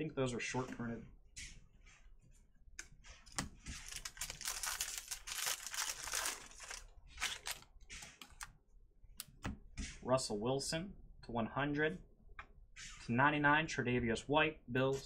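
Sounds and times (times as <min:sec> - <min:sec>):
wrapper tearing and crinkling: 0:03.8 - 0:07.7.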